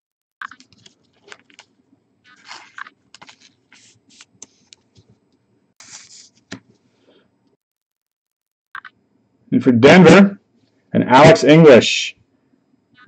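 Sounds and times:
cards rustling: 0.5s - 1.7s, 2.3s - 5.1s, 5.8s - 6.8s
cards scraping and clicking: 2.3s - 5.1s.

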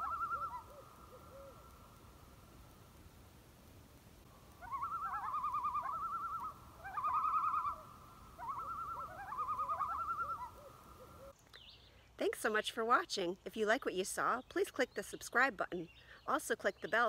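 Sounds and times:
bird calling in quavering phrases: 0.0s - 2.1s, 4.3s - 12.0s.

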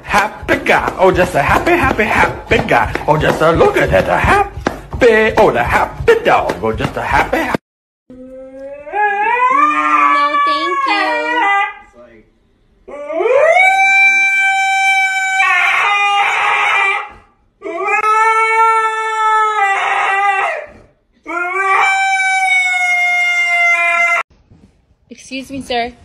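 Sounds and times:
dog howling: 8.1s - 11.9s, 12.9s - 24.3s.

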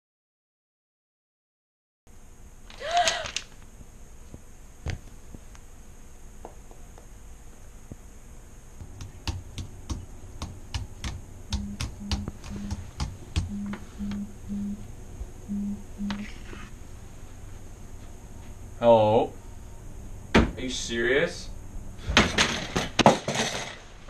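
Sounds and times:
brief vocal cry: 2.7s - 3.4s
keyboard typing: 8.9s - 14.8s, 15.6s - 16.2s
phone buzzing on vibrate: 11.4s - 16.8s.

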